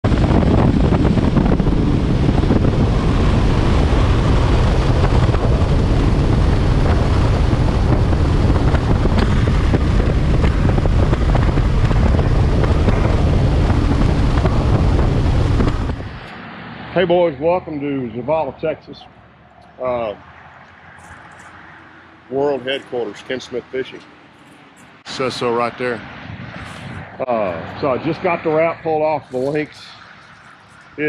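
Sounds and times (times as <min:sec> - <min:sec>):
outboard motor: 0:00.0 - 0:16.3
wind buffeting microphone: 0:00.0 - 0:18.5, 0:22.3 - 0:31.0
hull water noise: 0:00.0 - 0:31.0.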